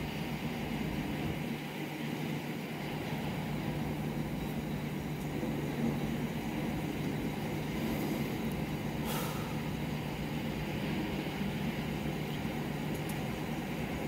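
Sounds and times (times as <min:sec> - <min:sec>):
short hiss: 0:09.0 - 0:09.6.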